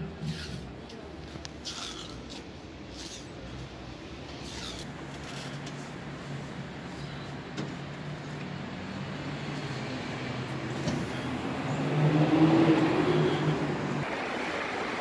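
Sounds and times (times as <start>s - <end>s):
vehicle engine passing: 8.6s - 15.0s.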